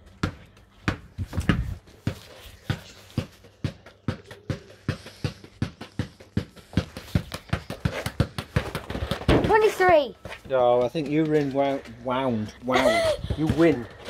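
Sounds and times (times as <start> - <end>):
football bouncing on tarmac: 0.1 - 11.5, 13.3 - 13.8.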